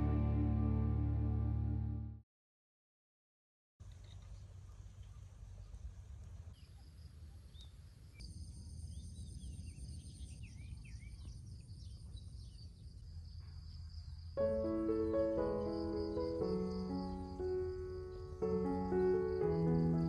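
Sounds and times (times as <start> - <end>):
low rumble: 0.0 - 2.2
piano music: 0.0 - 2.2, 14.4 - 20.0
bird chirping: 6.5 - 20.0.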